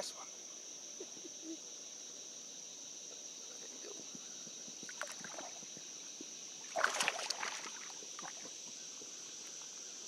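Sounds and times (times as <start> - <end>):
high insect drone: 0.0 - 10.0
fish splashing into water: 4.9 - 5.6, 6.6 - 8.5.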